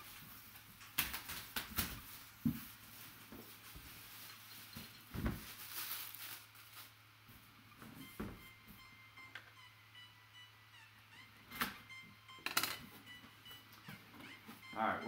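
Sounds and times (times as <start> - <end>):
plastic shrink wrap tearing: 5.4 - 6.9.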